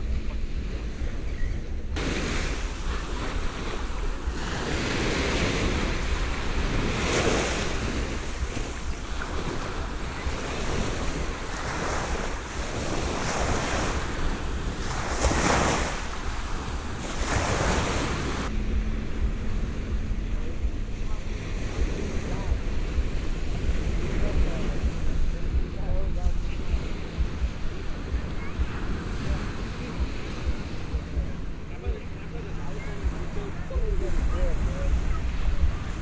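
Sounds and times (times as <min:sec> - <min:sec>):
wind rumble on microphone: 0:00.0 - 0:36.0
small waves washing on sand: 0:02.0 - 0:36.0.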